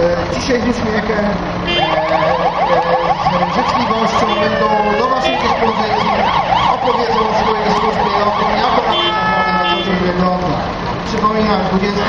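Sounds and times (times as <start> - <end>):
emergency vehicle siren: 1.6 - 11.1.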